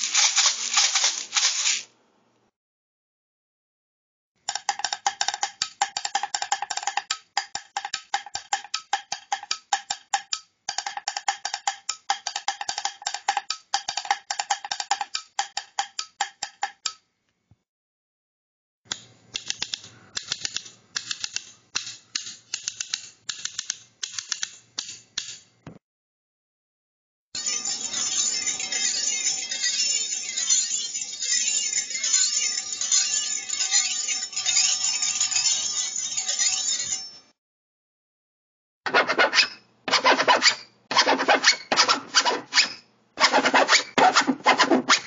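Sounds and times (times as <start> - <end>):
pliers clicking: 18.9 - 25.4.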